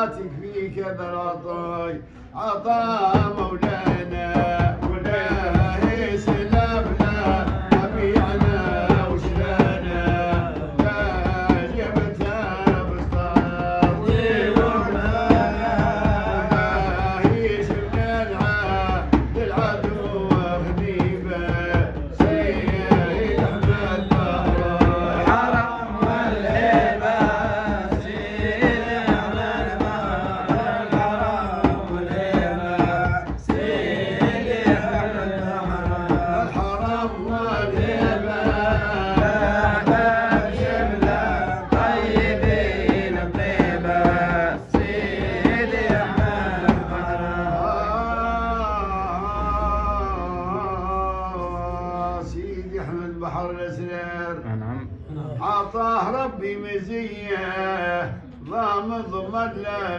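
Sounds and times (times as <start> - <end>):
melodic religious music: 0.0 - 54.8
hand drum beats: 2.9 - 47.8.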